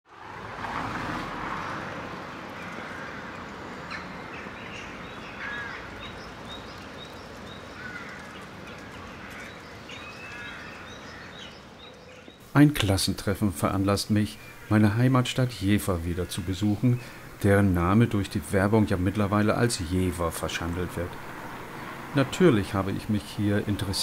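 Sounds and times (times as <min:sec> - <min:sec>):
crows cawing: 0:02.5 - 0:06.2, 0:07.5 - 0:12.3, 0:14.4 - 0:17.4.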